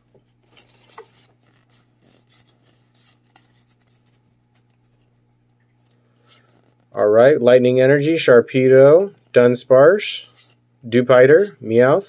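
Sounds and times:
cards rustling and ticking: 0:00.0 - 0:06.9.

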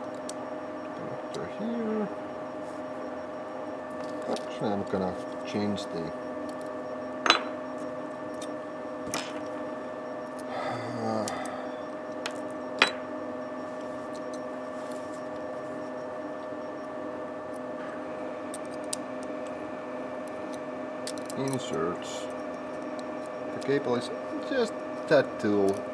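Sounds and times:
furnace humming: 0:00.0 - 0:25.9
small metal parts clicking: 0:20.5 - 0:21.8.

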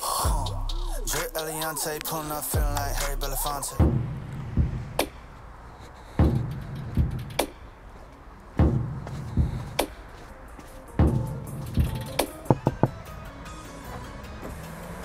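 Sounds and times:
slow drum beat: 0:02.6 - 0:04.8, 0:08.6 - 0:09.7
sung music: 0:08.6 - 0:15.0.

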